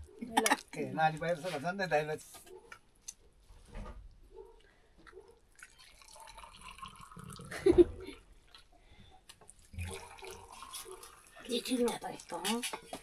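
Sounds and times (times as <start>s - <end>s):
liquid splashing and trickling: 5.5s - 12.9s.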